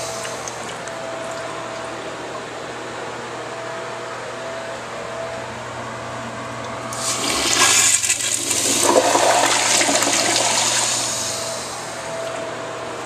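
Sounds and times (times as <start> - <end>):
toilet flushing: 6.9 - 12.0.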